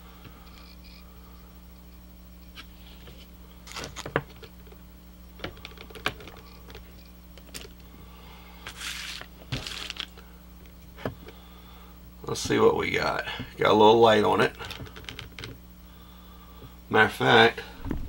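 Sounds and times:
low hum: 17.6 - 18.0.

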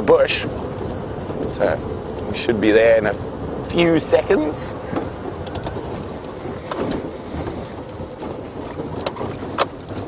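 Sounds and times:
vehicle engine and tyres rumbling: 0.0 - 10.0.

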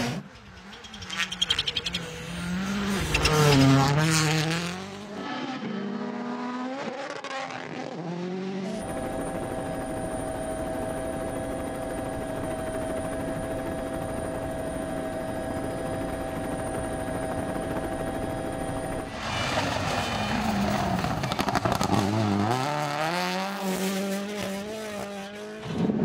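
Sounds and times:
helicopter drone: 0.0 - 6.5, 8.2 - 25.6
rally car engine revving: 0.0 - 8.9, 19.1 - 26.0.

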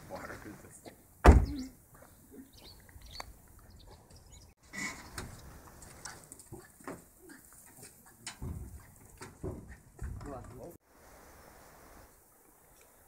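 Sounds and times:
car door shutting: 1.2 - 1.6.

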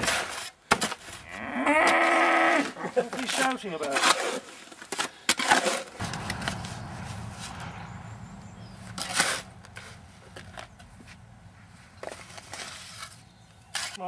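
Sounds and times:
sharp knocks: 6.0 - 12.7
low steady rumble: 6.0 - 13.6.

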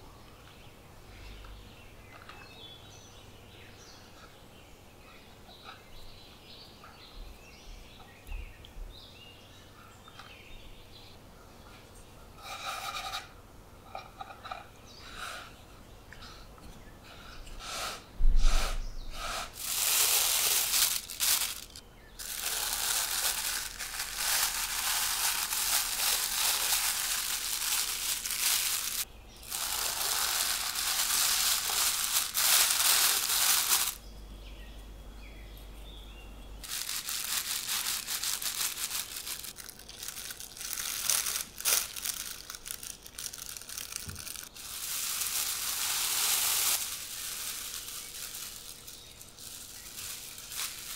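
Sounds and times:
hands rubbing dough: 19.2 - 34.0, 36.6 - 50.9
plastic bags crinkling: 19.5 - 34.0, 36.6 - 50.9.

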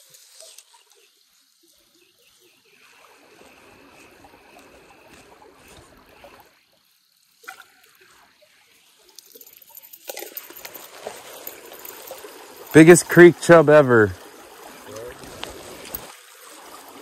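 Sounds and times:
fishing reel whirring: 2.6 - 6.6, 8.8 - 17.0
water splashing: 2.6 - 17.0.

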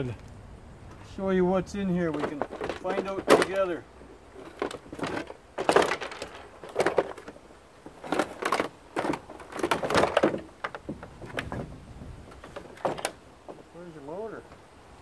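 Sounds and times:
plastic case creaking and scraping: 1.8 - 13.7.

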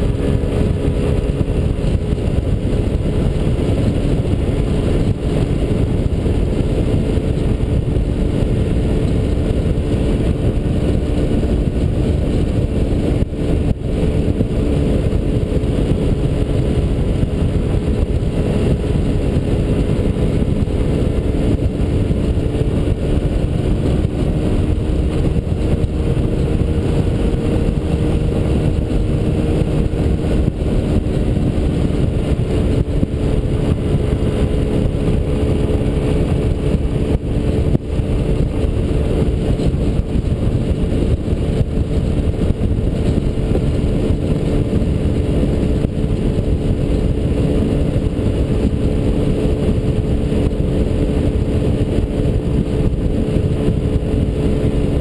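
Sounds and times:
scooter engine cruising: 0.0 - 55.0
wind and road noise: 0.0 - 55.0.

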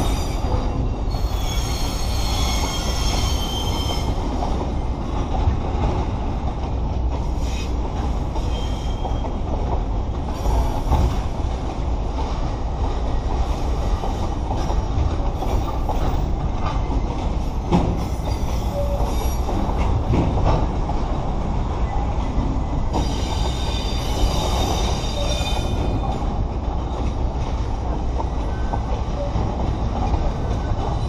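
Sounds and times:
high wheel squeal: 0.0 - 4.2, 8.4 - 9.3, 22.9 - 26.1
freight train rumbling: 0.0 - 31.0.

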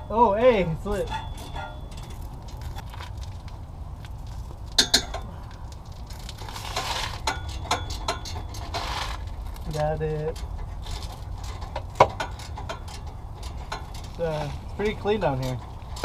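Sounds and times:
sharp metallic knocks: 0.8 - 2.8, 4.7 - 5.4, 7.2 - 9.0, 10.2 - 16.0.

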